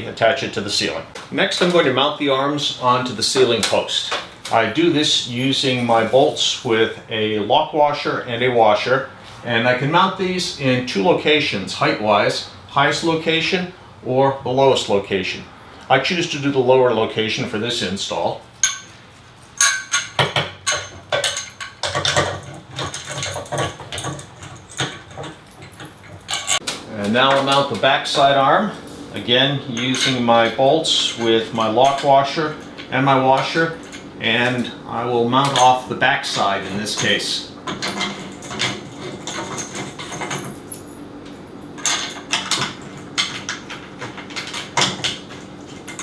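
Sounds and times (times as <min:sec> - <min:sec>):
metallic clinks and knocks: 0:18.6 - 0:26.7, 0:37.0 - 0:46.0.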